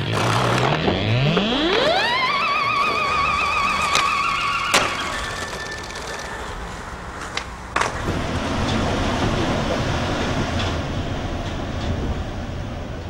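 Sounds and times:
skateboard clacks: 0:00.0 - 0:08.8
skateboard wheels rolling on pavement: 0:00.0 - 0:13.0
metro train rumbling: 0:02.8 - 0:13.0.

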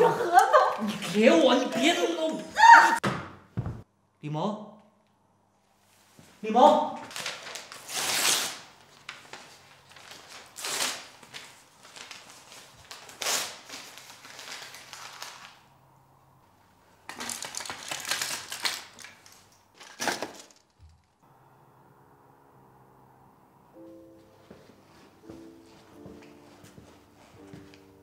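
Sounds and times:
paper tearing: 0:07.1 - 0:08.8, 0:09.9 - 0:15.6
soft music: 0:21.3 - 0:28.0.

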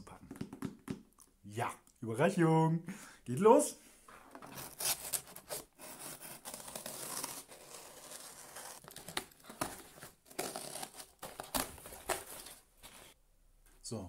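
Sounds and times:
knife slitting packing tape: 0:04.5 - 0:12.5.

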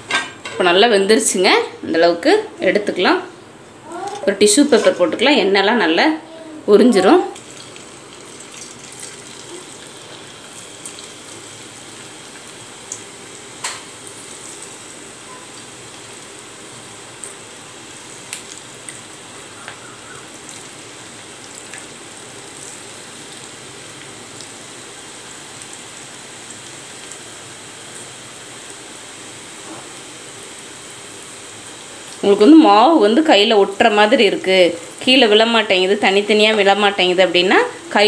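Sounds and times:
peanuts sizzling in hot oil: 0:06.9 - 0:38.0
oil popping: 0:07.4 - 0:16.1.

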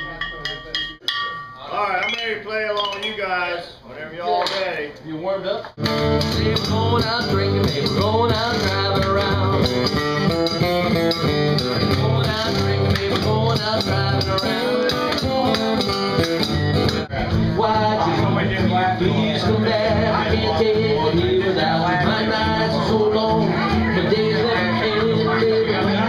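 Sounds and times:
acoustic guitar strummed: 0:05.8 - 0:26.0
man singing: 0:06.1 - 0:10.0, 0:11.7 - 0:15.8, 0:17.2 - 0:26.0.

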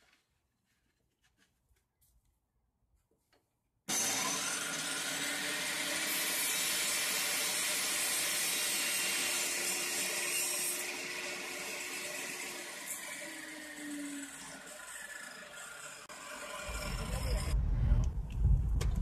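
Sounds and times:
car tyre and wind noise: 0:16.6 - 0:19.0.

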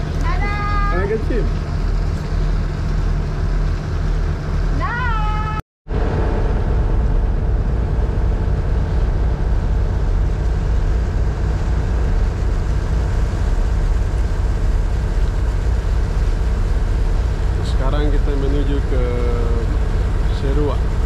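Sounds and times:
boat engine throbbing: 0:00.0 - 0:21.0
wind and water rushing: 0:05.9 - 0:21.0.

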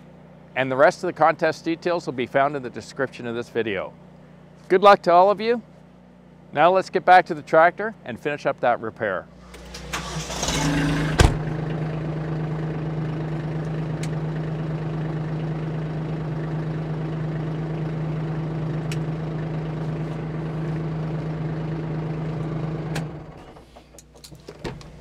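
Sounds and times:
tractor engine hum: 0:09.4 - 0:25.0.

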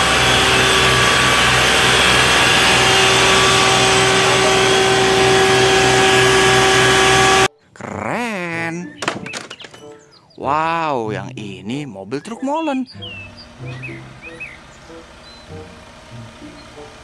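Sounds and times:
high-pressure water jet spraying: 0:00.0 - 0:07.5
water pump running: 0:00.0 - 0:07.5, 0:13.0 - 0:17.0.

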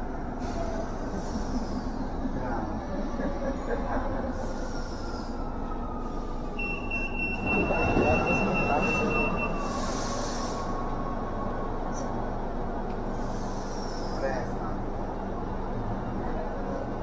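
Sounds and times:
train car whine: 0:00.0 - 0:17.0
train doors hissing open: 0:08.4 - 0:10.8.

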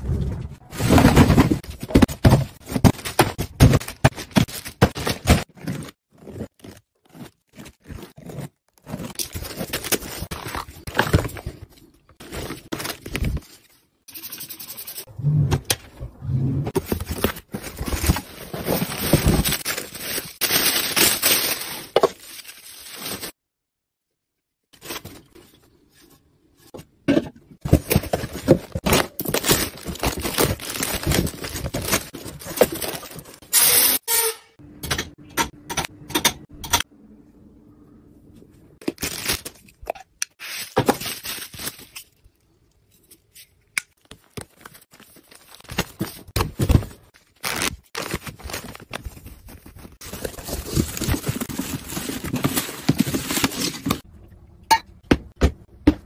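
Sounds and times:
plastic packaging crinkling: 0:17.0 - 0:23.4, 0:28.0 - 0:33.4.

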